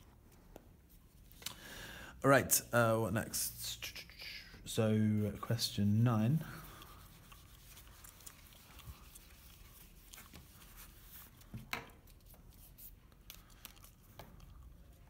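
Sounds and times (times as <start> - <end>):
eraser wiping whiteboard: 6.3 - 13.0.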